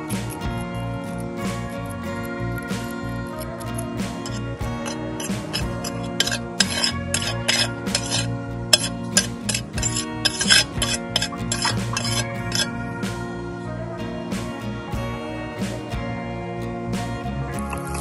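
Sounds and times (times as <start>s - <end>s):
background music: 0.0s - 18.0s
knife scraping tile board: 5.2s - 12.7s.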